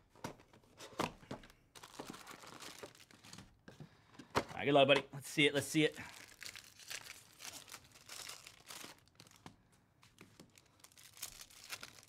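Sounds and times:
foil wrapper tearing and crinkling: 6.0 - 9.4, 10.6 - 12.0.

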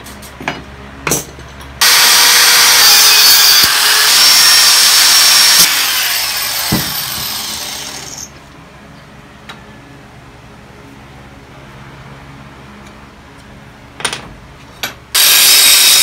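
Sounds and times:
grinder disc winding down: 1.8 - 8.3, 15.2 - 16.0
angle grinder cutting steel: 1.8 - 8.4, 15.2 - 16.0
knock: 6.7 - 7.0.

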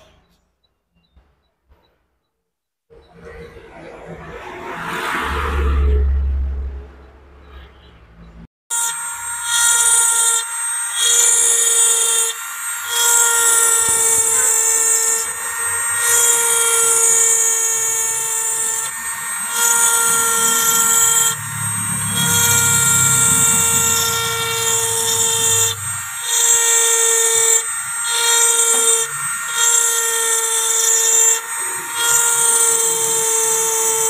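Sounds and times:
rotary tool whining: 8.7 - 34.0.

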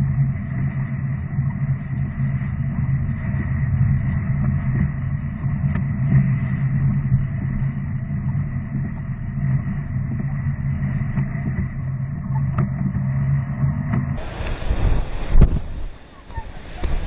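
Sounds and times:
car engine and road noise: 14.1 - 17.0.

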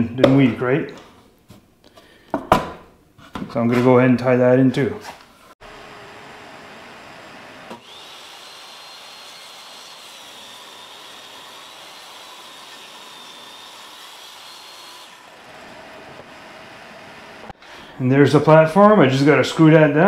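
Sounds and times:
power drill whining: 5.6 - 17.6.

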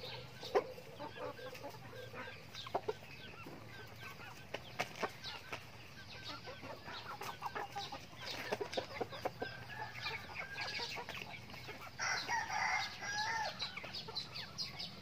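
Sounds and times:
chickens clucking and peeping: 0.0 - 15.0
rooster crowing: 12.0 - 13.8.

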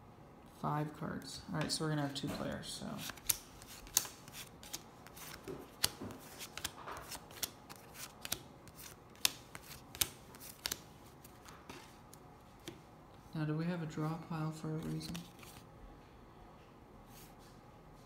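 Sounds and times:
playing cards snapping and flicking: 3.0 - 11.6.

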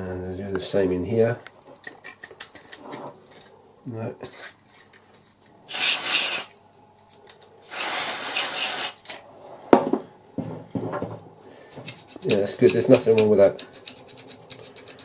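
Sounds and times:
aerosol can spraying: 5.7 - 6.5, 7.7 - 9.0.

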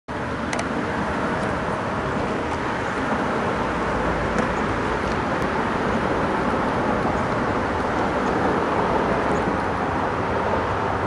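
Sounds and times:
road traffic rush: 0.1 - 11.0.

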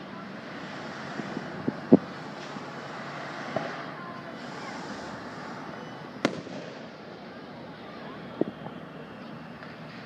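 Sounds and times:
fireworks bangs: 6.1 - 7.2.

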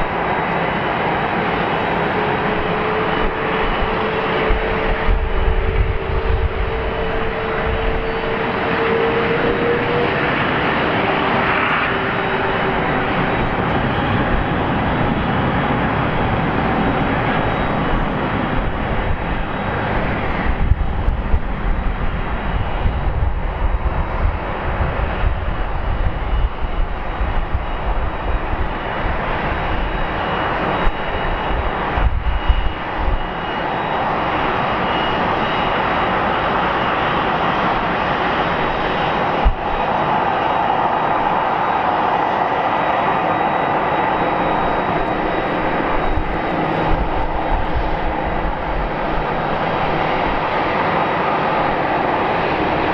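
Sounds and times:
jet engines running at taxi power: 0.0 - 52.9
uneven low rumble: 17.7 - 29.7.

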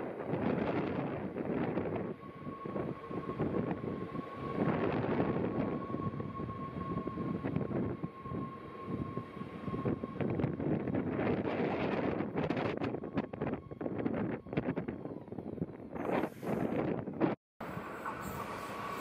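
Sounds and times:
train wheels rumbling on rails: 0.0 - 19.0
thin high whine: 17.6 - 19.0.

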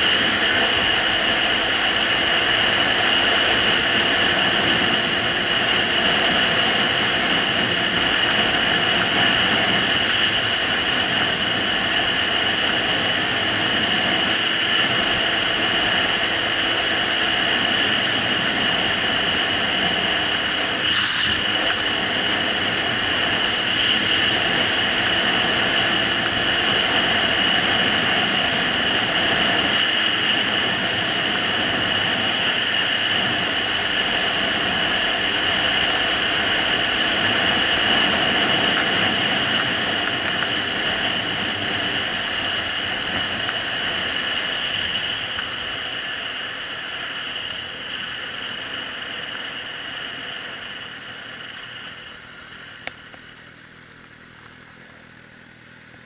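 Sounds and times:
motorcycle engine running: 0.0 - 56.0
wind noise: 2.6 - 45.9
brief hiss: 20.8 - 21.8.

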